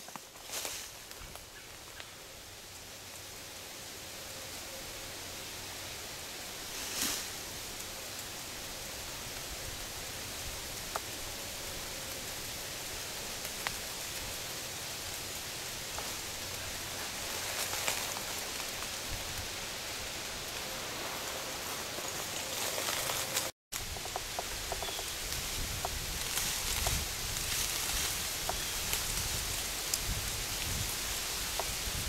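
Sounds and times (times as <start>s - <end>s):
breeze rustling dry leaves: 0.0s - 32.0s.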